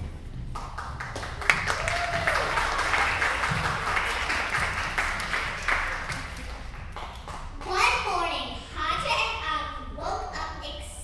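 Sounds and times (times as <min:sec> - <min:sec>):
audience applauding: 0:00.5 - 0:07.6.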